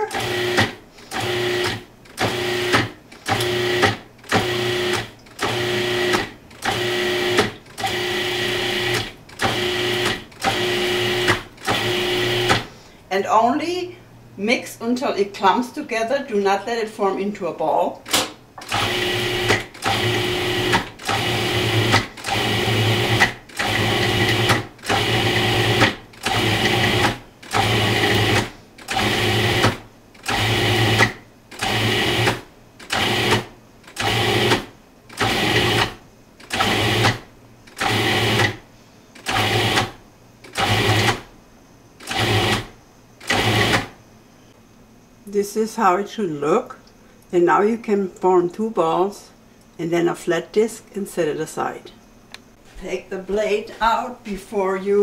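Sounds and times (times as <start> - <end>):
food processor motor pulsing: 0.0 - 12.7, 18.6 - 38.6, 39.2 - 41.3, 42.0 - 43.9.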